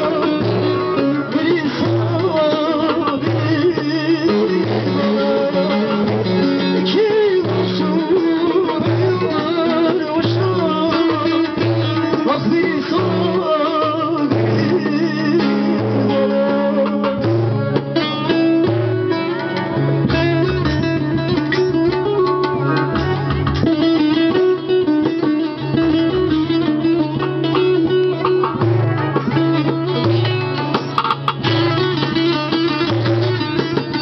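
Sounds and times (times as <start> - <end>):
folk song on plucked strings: 0.0 - 34.0.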